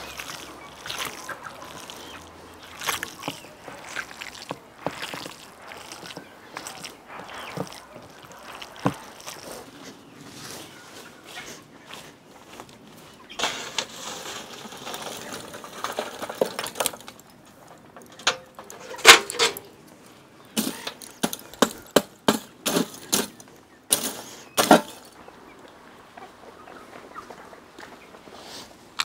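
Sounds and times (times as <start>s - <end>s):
metal hook raking coals: 0.0s - 9.7s, 13.3s - 20.0s, 20.6s - 25.1s
charcoal rustling into grill: 0.0s - 10.7s, 12.5s - 25.2s.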